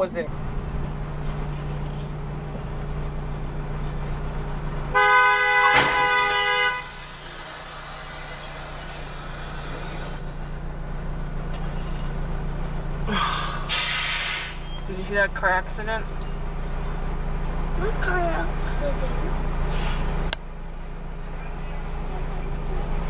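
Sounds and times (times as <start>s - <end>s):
low engine hum: 0.0s - 23.0s
two-tone vehicle horn: 4.8s - 7.2s.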